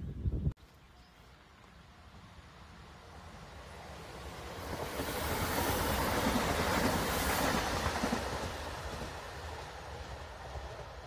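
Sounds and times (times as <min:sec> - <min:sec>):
train passing on rails: 0:01.0 - 0:11.0.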